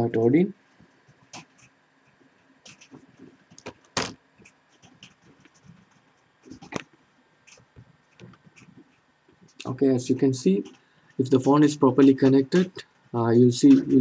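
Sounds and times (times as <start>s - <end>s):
computer mouse clicks: 2.6s - 5.8s.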